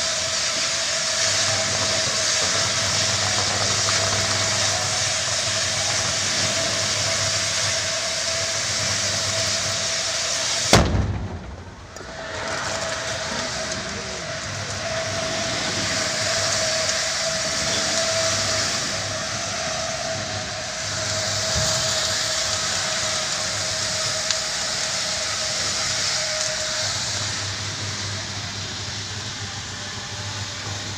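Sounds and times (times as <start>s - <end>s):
gas fire roaring: 0.0s - 30.9s
loud bang: 10.7s - 14.5s.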